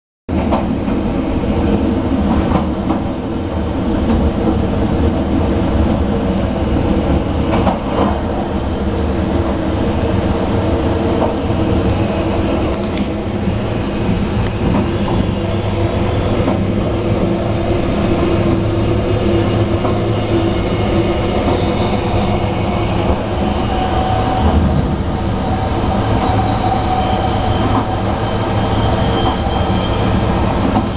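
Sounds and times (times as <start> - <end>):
train wheel and rail noise: 0.3 - 30.9
diesel locomotive engine running: 8.4 - 30.9.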